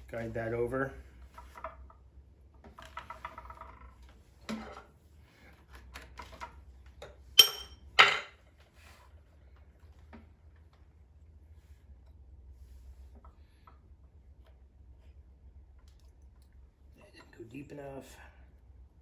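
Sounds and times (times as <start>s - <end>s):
metal tools clinking: 7.4s - 8.3s.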